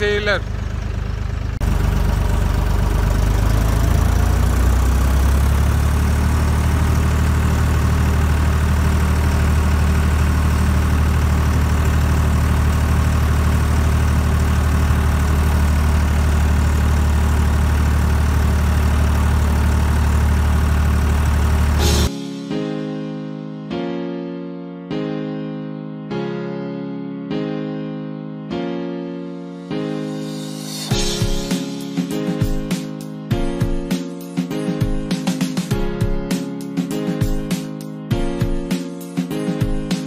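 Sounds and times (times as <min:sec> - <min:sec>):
tractor diesel engine droning: 0:00.0 - 0:22.1.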